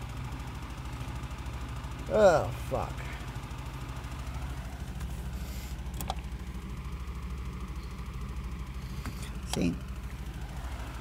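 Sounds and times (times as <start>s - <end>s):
low motor hum: 0.0s - 11.0s.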